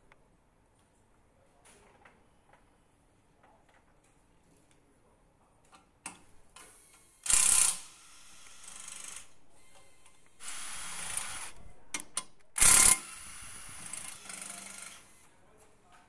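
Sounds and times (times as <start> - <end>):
impact wrench bursts: 6.6 - 11.5, 12.6 - 15.2
impact wrench running: 6.8 - 9.3, 10.4 - 11.5, 12.6 - 15.2.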